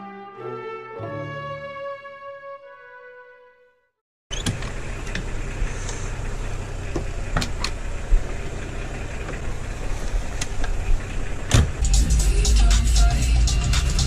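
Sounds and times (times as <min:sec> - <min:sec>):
car engine idling: 0:04.4 - 0:14.0.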